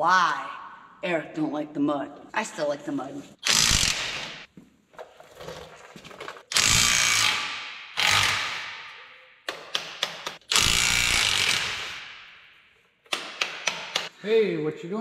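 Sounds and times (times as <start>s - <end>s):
cordless power tool spinning bolts: 6.5s - 8.7s, 10.5s - 12.0s.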